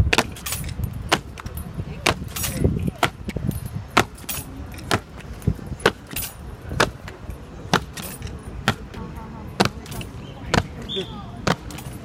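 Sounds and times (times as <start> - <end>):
boots stamping on stone: 1.1 - 9.0.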